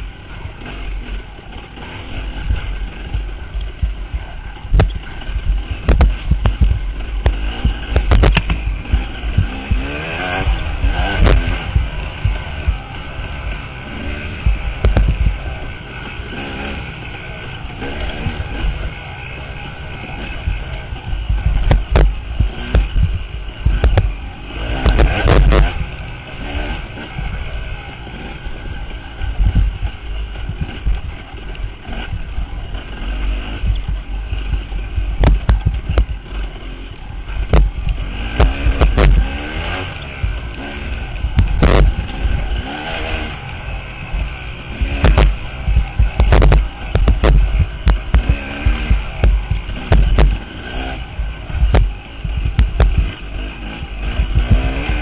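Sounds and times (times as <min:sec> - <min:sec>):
dirt bike engine revving: 0:00.0 - 0:55.0
bike knocking over bumps: 0:04.7 - 0:13.1, 0:33.6 - 0:36.3, 0:37.4 - 0:40.6, 0:44.8 - 0:50.5.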